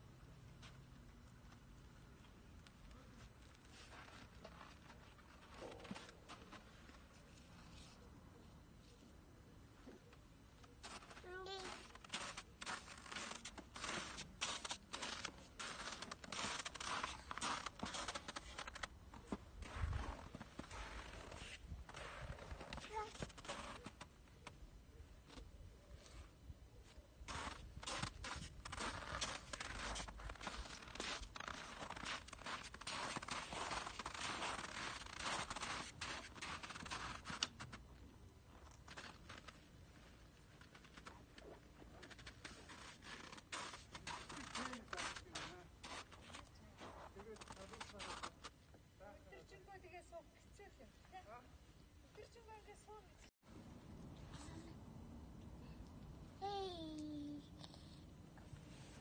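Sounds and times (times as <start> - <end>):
footsteps crunching in snow: 10.8 - 24.0, 27.3 - 37.8, 38.8 - 48.5.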